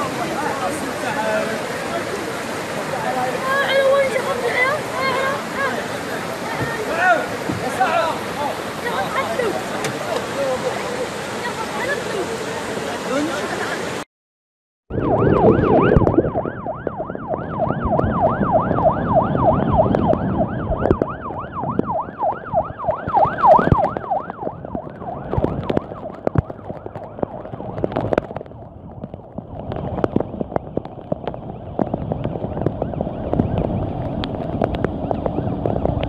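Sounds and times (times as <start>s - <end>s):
rushing floodwater: 0.0s - 14.1s, 15.3s - 36.0s
emergency siren yelping: 14.9s - 28.4s, 30.5s - 36.0s.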